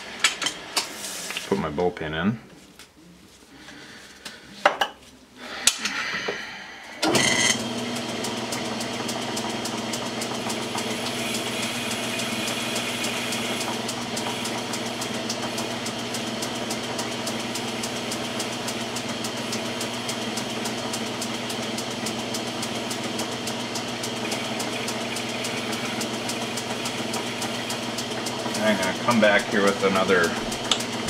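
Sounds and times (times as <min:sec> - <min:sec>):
metal lathe humming: 0:06.9 - 0:31.0.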